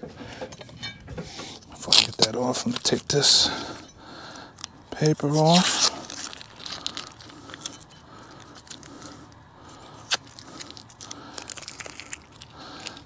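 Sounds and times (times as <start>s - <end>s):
paper tearing and crinkling: 1.8s - 3.2s, 5.0s - 7.8s, 10.0s - 13.0s.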